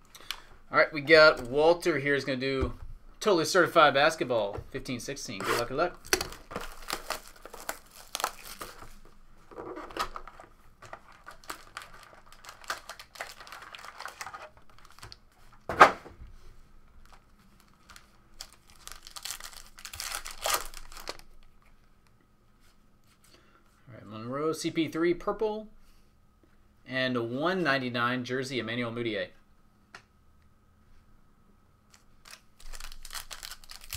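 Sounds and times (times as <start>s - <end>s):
wrappers crinkling and tearing: 5.3s - 15.5s, 17.0s - 21.5s, 31.9s - 33.9s.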